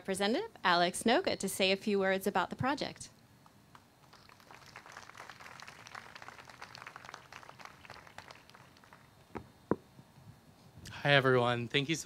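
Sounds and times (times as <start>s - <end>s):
faint scattered applause: 3.7s - 9.2s.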